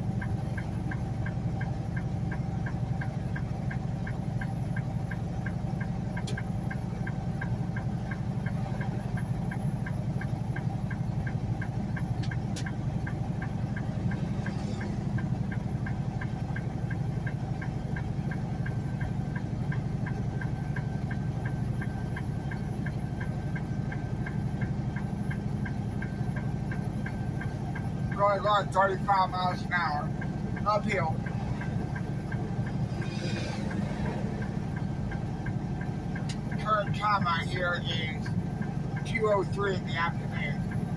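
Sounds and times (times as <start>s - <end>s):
regular ticking: 0.0s - 40.9s
truck diesel engine droning: 0.0s - 40.9s.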